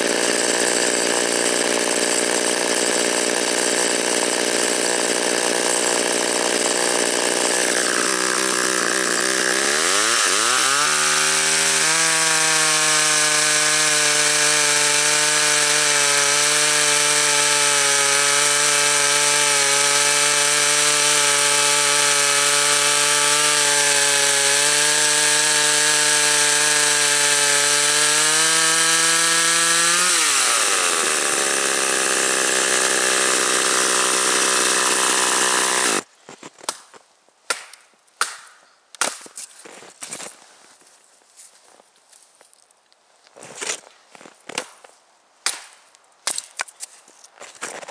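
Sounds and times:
chainsaw cutting log: 0:00.0 - 0:36.1.

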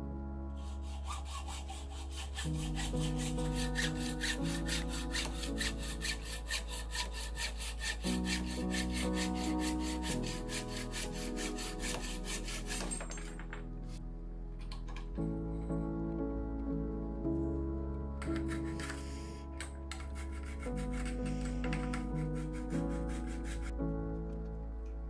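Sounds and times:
hacksaw cutting metal tube: 0:00.6 - 0:13.4, 0:18.2 - 0:19.1, 0:19.9 - 0:23.7.

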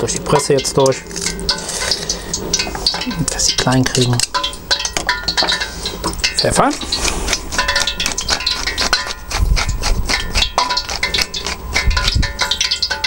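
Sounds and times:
pepper grinder clicking: 0:06.8 - 0:13.0.

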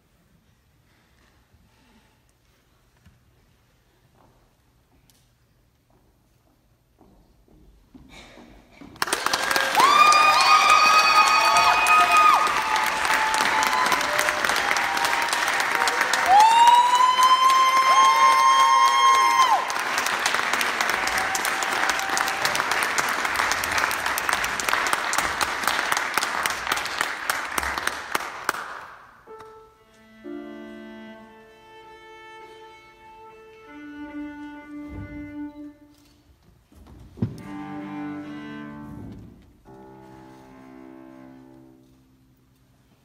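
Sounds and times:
audience applauding: 0:08.9 - 0:29.1
cello playing held notes: 0:29.3 - 0:36.0, 0:37.3 - 0:42.1.

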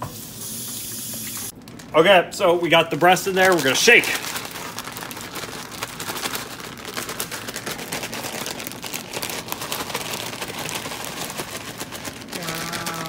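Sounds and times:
plastic bag crinkling: 0:01.5 - 0:13.0
crumbs rattling inside bag: 0:03.0 - 0:13.0.

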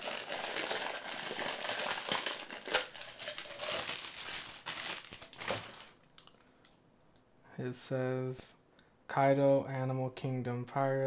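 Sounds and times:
plastic wrapping crinkling: 0:00.0 - 0:06.4.

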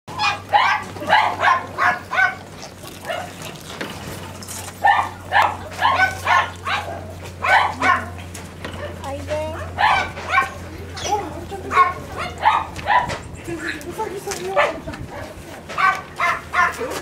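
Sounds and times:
dog barking yappy barks: 0:00.1 - 0:03.5, 0:04.8 - 0:08.2, 0:08.8 - 0:11.1, 0:11.7 - 0:13.2, 0:14.5 - 0:17.0.

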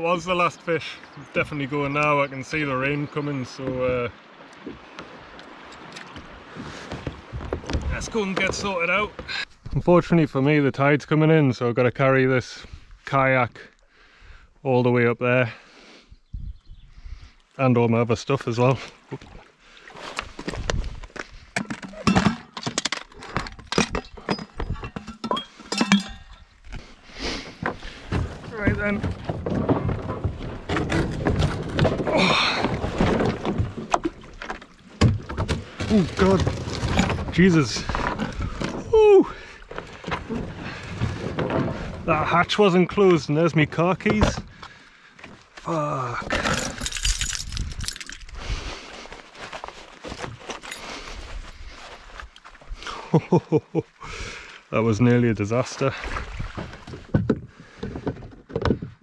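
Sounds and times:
gear clinking on rocks: 0:46.3 - 0:48.4, 0:50.2 - 0:51.0.

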